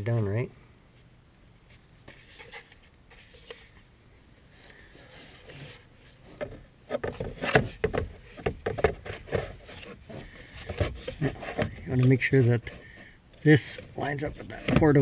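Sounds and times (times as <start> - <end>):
plastic knocking and scraping: 5.3 - 12.8, 13.6 - 15.0.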